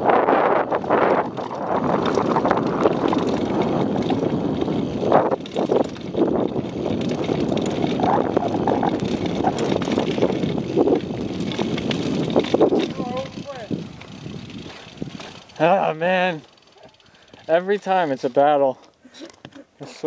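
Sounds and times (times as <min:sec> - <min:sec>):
wind on microphone: 0:00.0 - 0:15.6
bike rattling over bumps: 0:00.0 - 0:20.0
tyres rolling over stones: 0:01.1 - 0:18.5.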